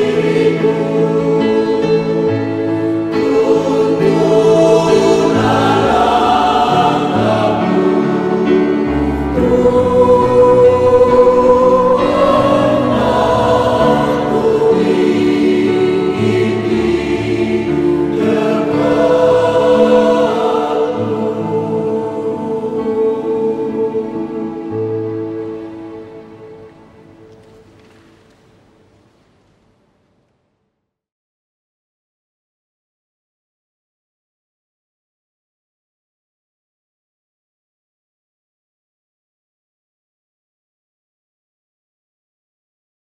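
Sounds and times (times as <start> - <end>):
mixed choir singing in harmony: 0.0 - 27.4.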